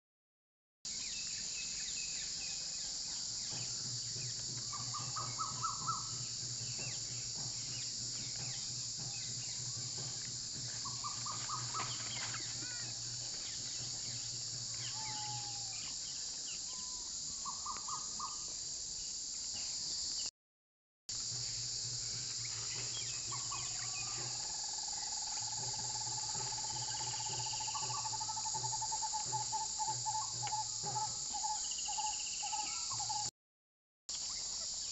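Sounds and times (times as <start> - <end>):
insects chorus: 0.9 - 20.3, 21.1 - 33.3, 34.1 - 34.9.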